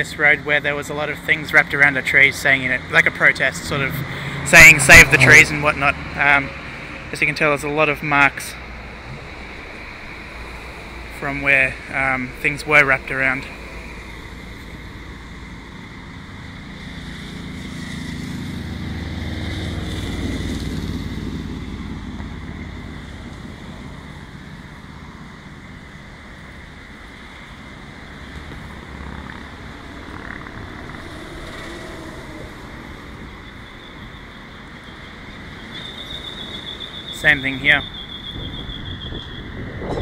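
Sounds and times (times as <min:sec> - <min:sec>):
road traffic: 0:00.0 - 0:40.0
vehicle passing: 0:01.7 - 0:40.0
wind rumbling on microphone: 0:08.7 - 0:11.2, 0:27.7 - 0:34.2, 0:38.2 - 0:40.0.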